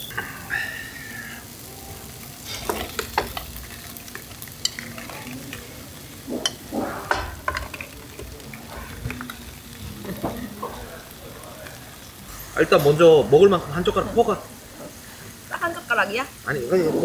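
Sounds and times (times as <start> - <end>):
meat sizzling on griddle: 0.0 - 17.0
metal tongs clicking and scraping: 2.4 - 5.3.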